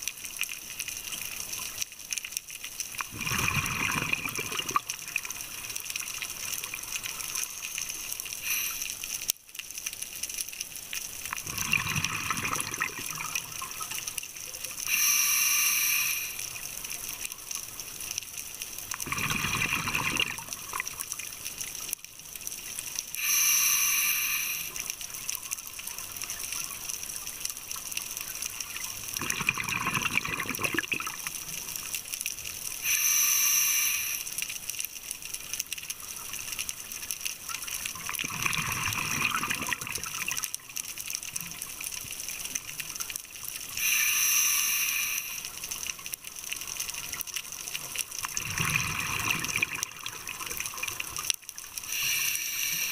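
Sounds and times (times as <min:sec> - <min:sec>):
exhaled air bubbling underwater: 0:03.0 - 0:08.8, 0:11.2 - 0:17.5, 0:18.8 - 0:21.9, 0:23.2 - 0:31.9, 0:36.0 - 0:52.9
regulator hiss: 0:07.6 - 0:09.1, 0:14.8 - 0:16.7, 0:23.2 - 0:25.0, 0:32.8 - 0:34.5, 0:43.7 - 0:45.6, 0:51.8 - 0:52.9.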